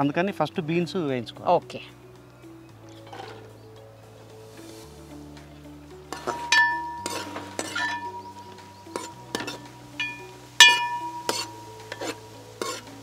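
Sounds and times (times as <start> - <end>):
background music with low notes: 0.0 - 13.0
metal utensil clinking on pot: 6.1 - 12.9.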